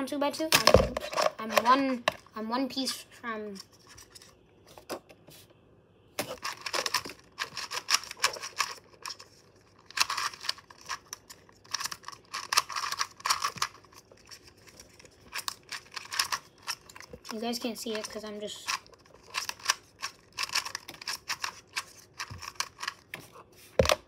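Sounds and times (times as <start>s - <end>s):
plastic cube clicking and clacking: 6.2s - 23.2s.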